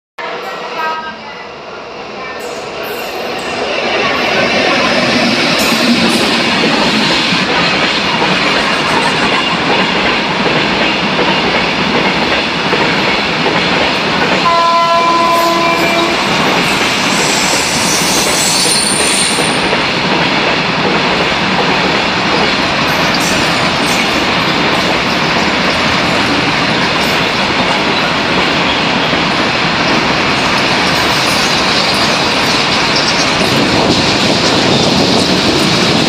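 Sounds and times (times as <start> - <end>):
freight train wheels rumbling: 0.4 - 36.0
train horn: 14.4 - 16.6.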